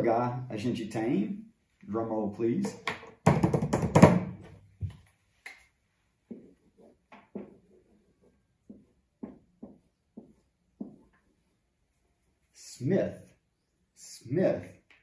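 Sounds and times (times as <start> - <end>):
marker writing on whiteboard: 6.3 - 12.5.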